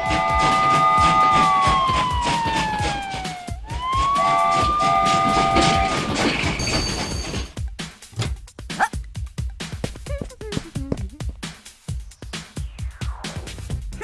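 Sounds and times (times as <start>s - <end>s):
police siren wailing: 0.0s - 6.6s
horn blasts: 0.0s - 7.0s
high two-note tone: 3.8s - 6.1s.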